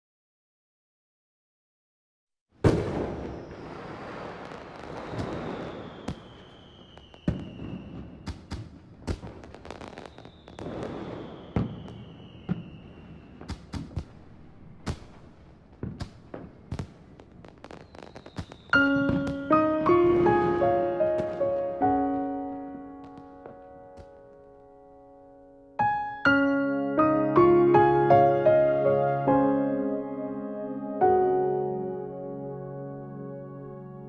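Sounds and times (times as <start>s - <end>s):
firework bangs: 2.6s - 24.8s
firework crackling: 2.6s - 24.8s
falling whistling tones: 3.0s - 8.7s, 9.4s - 14.0s, 17.6s - 22.9s.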